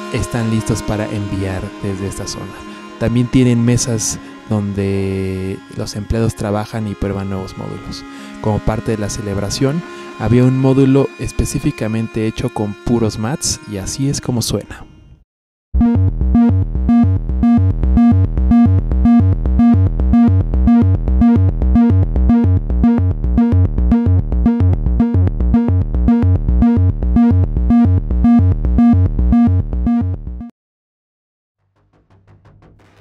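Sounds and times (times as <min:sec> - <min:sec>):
synthesizer pitched tones: 0:00.0 - 0:14.5
synthesizer bass thumps: 0:15.8 - 0:30.5.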